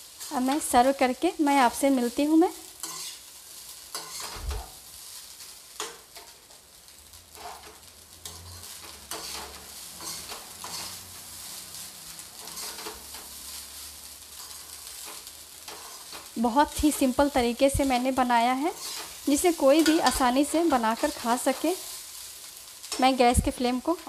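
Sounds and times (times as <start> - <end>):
frying sizzle: 0.0 - 24.0
spatula scraping a metal pan: 2.8 - 4.8, 7.3 - 11.5, 12.4 - 13.6, 14.4 - 16.4, 18.7 - 22.2.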